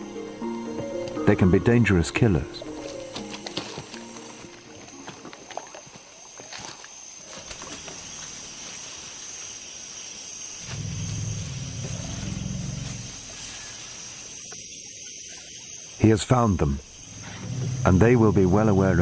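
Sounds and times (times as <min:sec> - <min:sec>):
insects buzzing high-pitched: 0:00.0 - 0:19.0
elephant rumbling: 0:10.6 - 0:14.4, 0:16.3 - 0:19.0.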